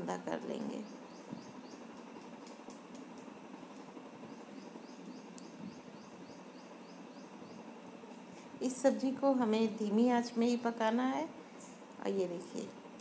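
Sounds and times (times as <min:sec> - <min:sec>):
faint background hiss: 0:00.0 - 0:13.0
small bird chirping: 0:00.6 - 0:02.1, 0:04.2 - 0:07.7.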